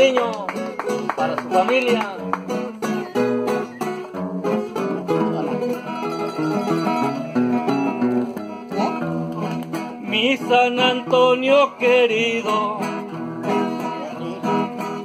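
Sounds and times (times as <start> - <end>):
nylon-string acoustic guitar: 0.0 - 15.0.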